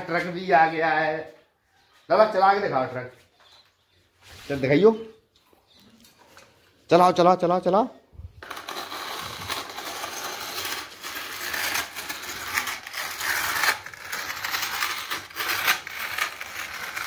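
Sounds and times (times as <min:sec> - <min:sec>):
plastic toy truck rolling on concrete: 0:08.3 - 0:17.0.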